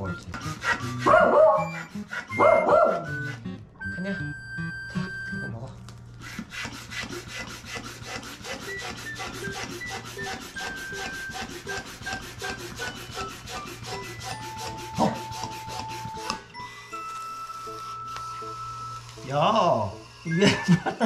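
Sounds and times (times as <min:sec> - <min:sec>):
hand air pump rasping strokes: 0:00.0 - 0:03.5, 0:06.2 - 0:16.6, 0:19.1 - 0:21.0.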